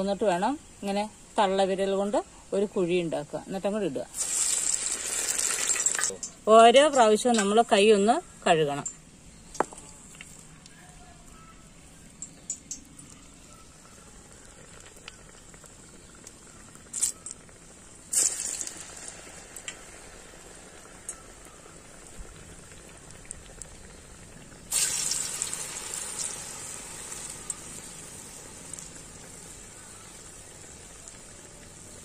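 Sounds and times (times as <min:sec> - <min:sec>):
batter sizzling in hot oil: 0:00.0 - 0:08.1, 0:11.3 - 0:32.0
oil bubbling deep-frying: 0:00.0 - 0:32.0.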